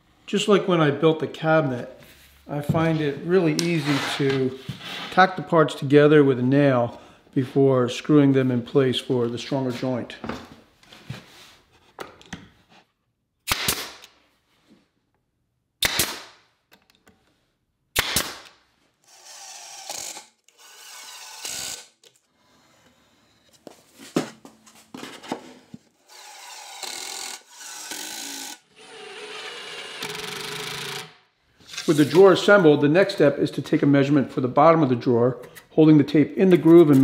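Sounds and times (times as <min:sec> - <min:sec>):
nail gun firing: 0:13.4 - 0:14.1, 0:15.8 - 0:16.4, 0:18.0 - 0:18.6
impact driver driving screws: 0:26.1 - 0:31.2.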